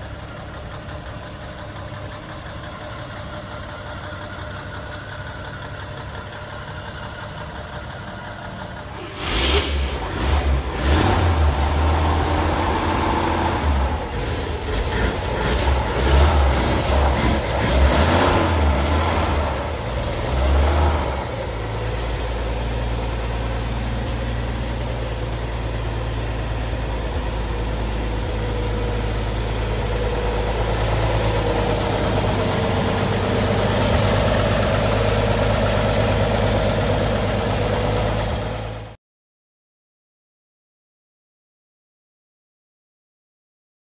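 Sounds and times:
pickup engine revving and idling: 0:09.0 - 0:38.8.

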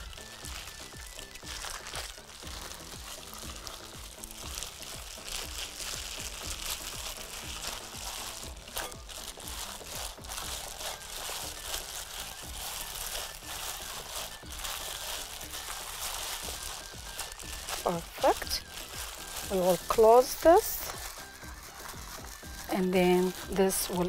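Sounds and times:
background music: 0:00.0 - 0:24.0
plastic bag crinkling: 0:00.0 - 0:24.0.

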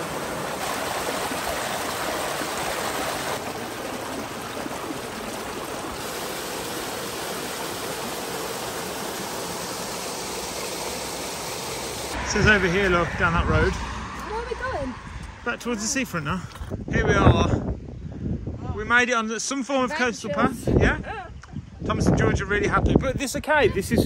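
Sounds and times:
small waterfall into stream: 0:00.0 - 0:12.2
water pouring over rocks: 0:00.0 - 0:12.2.

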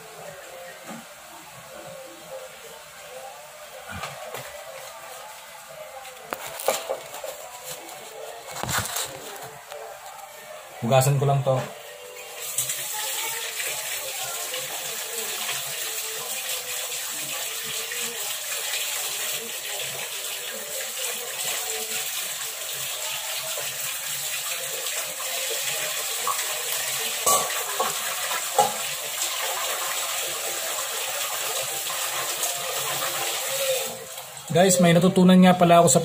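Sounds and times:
water running in a sink: 0:11.0 - 0:36.0.

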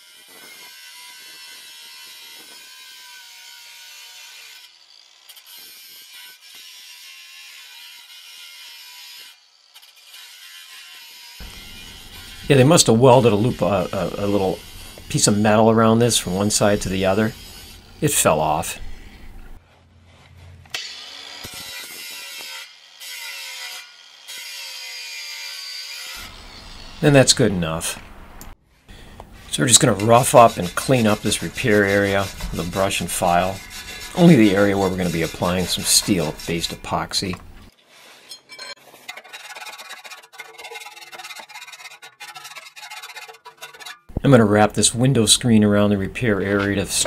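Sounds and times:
angle grinder grinding steel: 0:00.0 - 0:19.6, 0:20.7 - 0:47.0.

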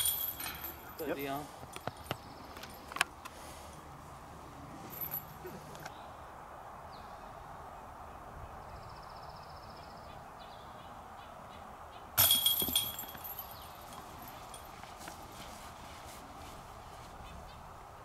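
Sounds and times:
disc striking metal basket chains: 0:00.0 - 0:01.9, 0:04.9 - 0:05.5, 0:12.2 - 0:14.7.

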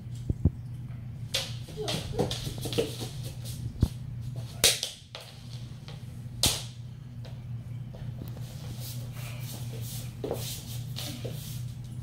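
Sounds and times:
steady low hum: 0:00.0 - 0:12.0
bare feet slapping wooden floor: 0:01.3 - 0:06.7.

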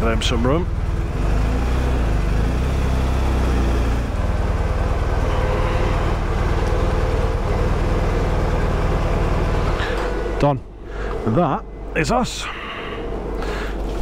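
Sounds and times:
motorcycle engine idling: 0:04.1 - 0:12.4.

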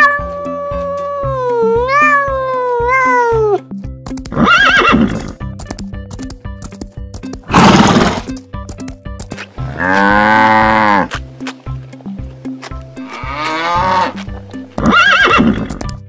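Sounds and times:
cat meowing: 0:00.0 - 0:03.6
horse whinnying: 0:00.0 - 0:03.6, 0:04.3 - 0:05.4, 0:07.5 - 0:08.3, 0:13.1 - 0:14.2, 0:14.8 - 0:15.8
background music with steady beat: 0:00.0 - 0:16.0.

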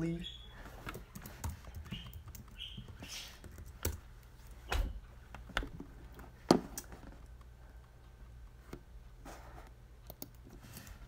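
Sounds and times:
computer keyboard clicks: 0:10.0 - 0:10.6.

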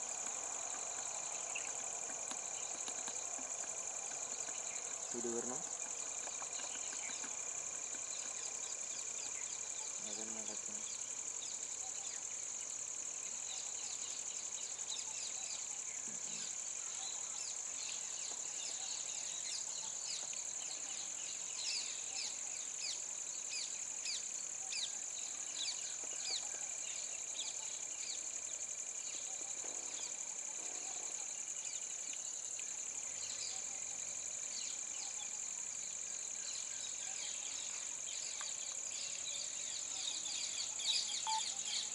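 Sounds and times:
insects droning: 0:00.0 - 0:41.9
birds chirping: 0:00.7 - 0:12.2, 0:36.4 - 0:41.9.

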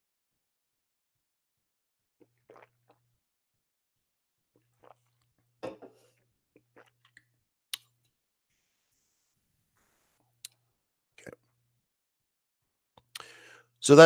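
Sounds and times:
man sipping and swallowing: 0:02.2 - 0:03.1, 0:04.5 - 0:08.0, 0:10.1 - 0:11.6, 0:13.0 - 0:13.8.

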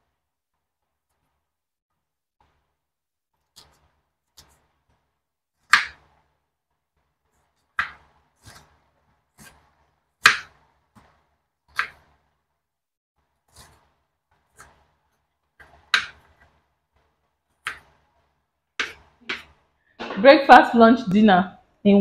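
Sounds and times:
knife chopping on wooden board: 0:05.7 - 0:06.1, 0:07.8 - 0:08.8, 0:09.4 - 0:12.2, 0:13.5 - 0:15.0, 0:15.6 - 0:18.1, 0:18.8 - 0:20.3.

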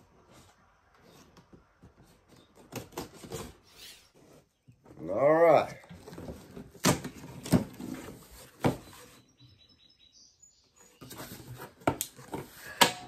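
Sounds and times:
cardboard rustling: 0:05.9 - 0:09.2, 0:10.9 - 0:12.8.

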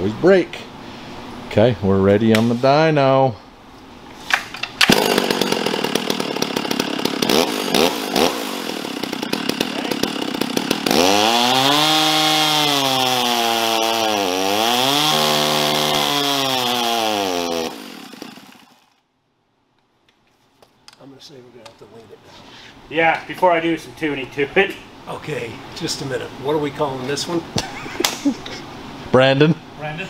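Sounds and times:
chainsaw engine running: 0:04.9 - 0:19.0.

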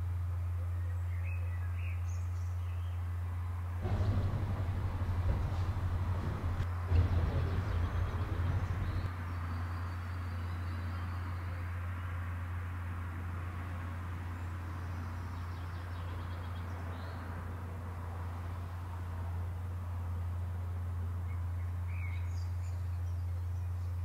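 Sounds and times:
car cabin driving drone: 0:03.8 - 0:09.1.

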